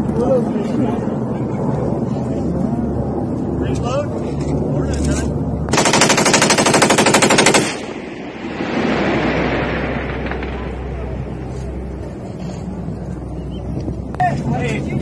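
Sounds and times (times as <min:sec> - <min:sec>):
machine gun burst: 0:05.7 - 0:07.9
rushing noise: 0:07.1 - 0:13.3.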